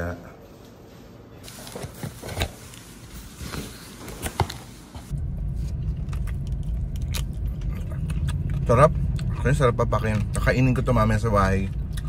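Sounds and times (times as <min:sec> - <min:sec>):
paper bag rustling: 0:01.4 - 0:05.7.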